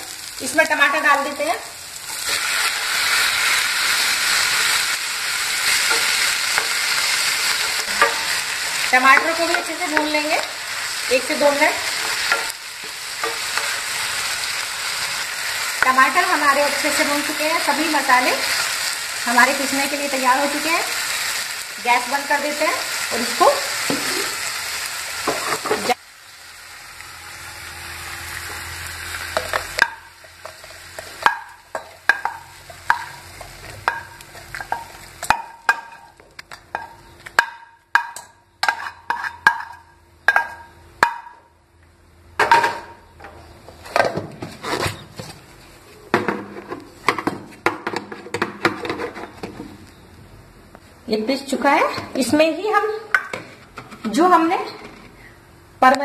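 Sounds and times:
hot oil sizzling in a pan: 0.0 - 36.2.

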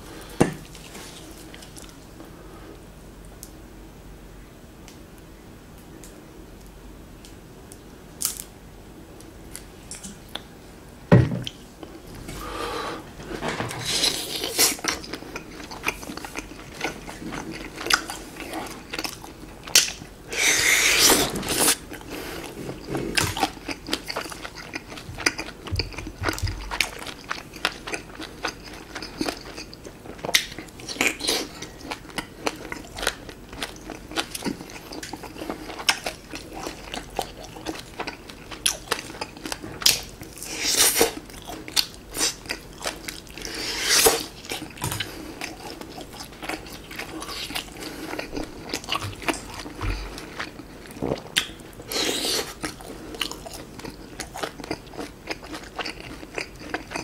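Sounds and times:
biting and chewing food: 13.3 - 57.0.

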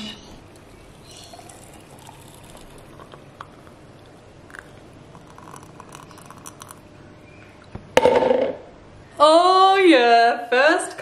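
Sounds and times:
thick liquid pouring over ice: 1.2 - 3.3.

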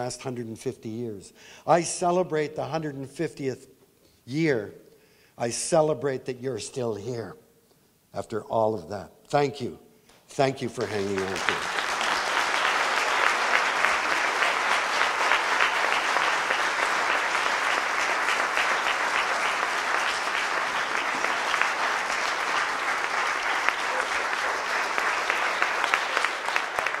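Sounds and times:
crowd clapping: 10.4 - 27.0.

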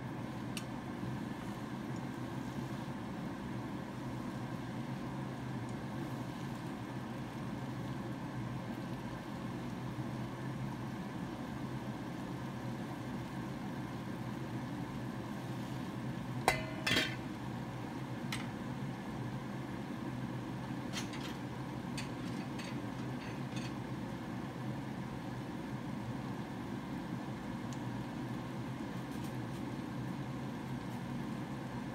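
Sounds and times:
steady low hum: 0.0 - 31.9
metal pan lid clinking: 16.5 - 17.2.

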